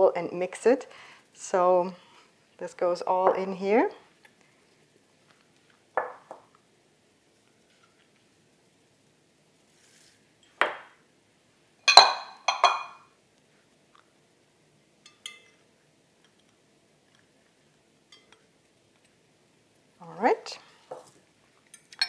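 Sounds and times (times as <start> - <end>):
glass bowls clinking: 11.9 - 13.1, 15.0 - 15.6, 18.1 - 18.4.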